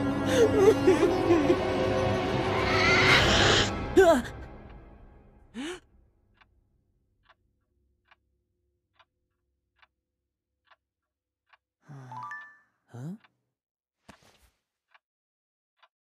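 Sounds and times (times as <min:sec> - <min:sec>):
person sighing: 0:05.6 - 0:05.8, 0:11.8 - 0:13.2
clock ticking faintly: 0:07.2 - 0:13.3
person humming hm: 0:11.9 - 0:13.2.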